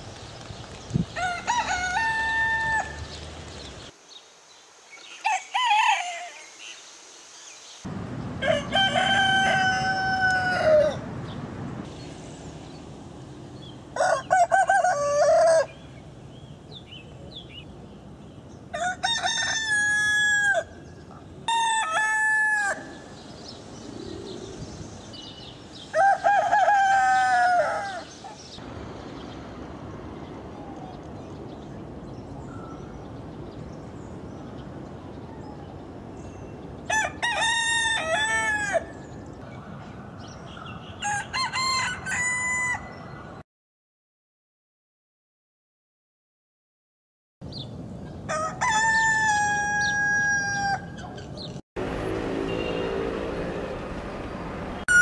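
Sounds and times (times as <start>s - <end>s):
roosters crowing: 1.1s - 3.2s, 5.1s - 6.5s, 8.4s - 11.1s, 13.9s - 15.9s, 18.7s - 23.2s, 25.2s - 28.6s, 36.8s - 39.2s, 40.9s - 43.4s, 48.3s - 51.3s
background hiss: 2.1s - 8.4s.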